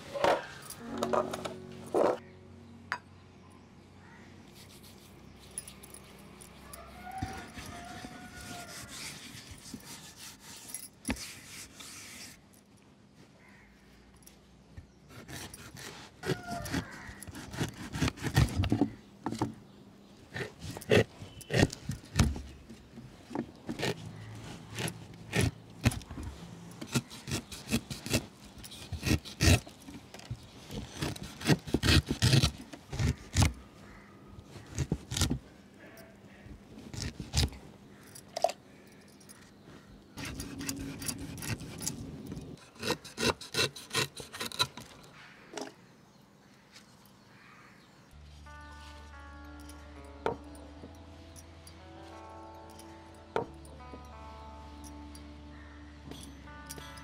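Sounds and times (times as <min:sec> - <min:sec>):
knife slicing and scraping fruit: 0:06.9 - 0:12.4, 0:15.1 - 0:19.5, 0:20.3 - 0:22.6, 0:23.6 - 0:29.8, 0:30.4 - 0:33.6, 0:34.5 - 0:35.5, 0:36.8 - 0:37.6, 0:40.2 - 0:45.0.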